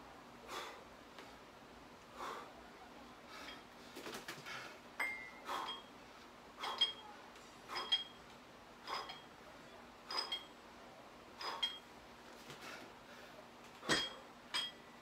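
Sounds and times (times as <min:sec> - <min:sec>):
dumbbells clinking: 0:03.4 - 0:03.7, 0:05.0 - 0:05.9, 0:06.6 - 0:07.1, 0:07.7 - 0:09.4, 0:10.0 - 0:10.6, 0:11.4 - 0:11.9, 0:13.8 - 0:15.0.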